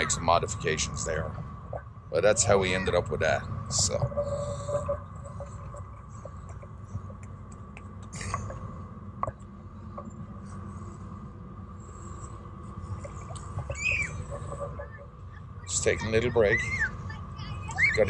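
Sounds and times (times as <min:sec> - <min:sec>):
faint steady hum: 0:00.0 - 0:18.0
low steady rumble: 0:00.0 - 0:18.0.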